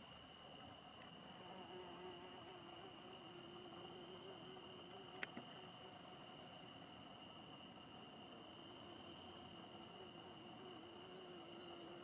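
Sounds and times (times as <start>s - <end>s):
fly buzzing: 1.4s - 5.4s, 9.9s - 12.0s.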